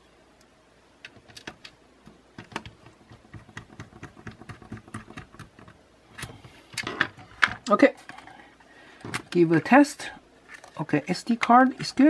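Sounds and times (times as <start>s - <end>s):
hands handling plastic body: 9.0s - 9.5s, 10.4s - 12.0s.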